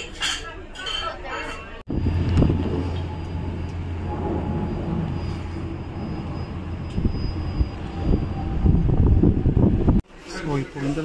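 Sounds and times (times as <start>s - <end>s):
boat engine rumble: 1.9s - 10.0s
wind on microphone: 1.9s - 10.0s.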